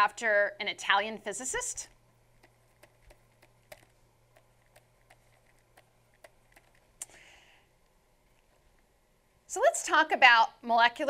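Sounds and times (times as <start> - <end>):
faint steady hum: 0.0 - 11.0
pen stylus tapping on tablet: 2.4 - 6.9.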